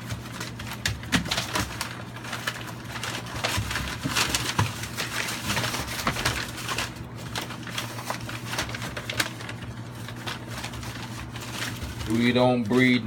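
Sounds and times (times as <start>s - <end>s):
newspaper tearing and crumpling: 0.0s - 13.0s.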